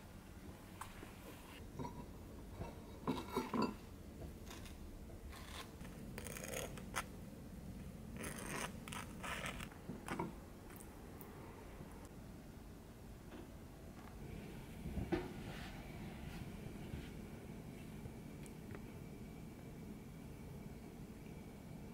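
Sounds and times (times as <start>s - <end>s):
knife scraping on toast: 8.2s - 10.2s.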